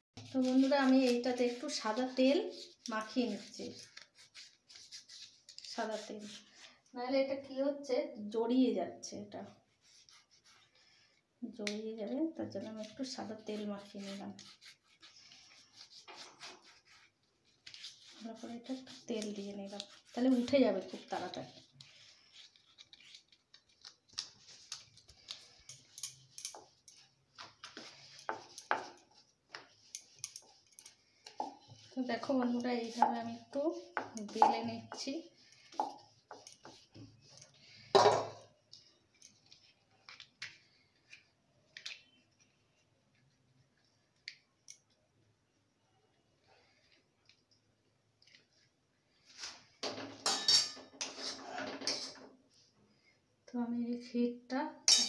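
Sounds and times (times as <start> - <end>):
metal spoon scraping a pan: 25.3 - 38.5, 49.9 - 52.3.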